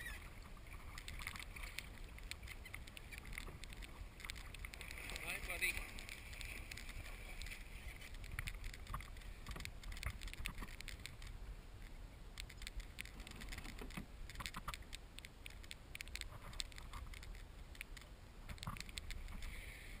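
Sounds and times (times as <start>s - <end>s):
small clicks and knocks: 0.4s - 19.6s.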